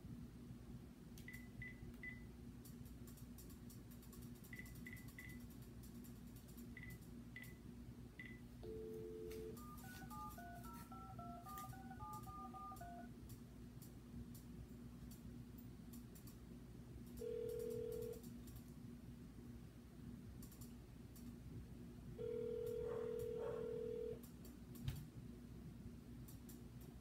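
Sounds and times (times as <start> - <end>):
keypad beeps: 1.2 - 2.2, 4.5 - 5.4, 6.8 - 7.6, 8.2 - 13.1
touch-tone digits: 8.2 - 13.1
dial tone: 8.6 - 13.1, 17.2 - 18.2, 22.2 - 24.2.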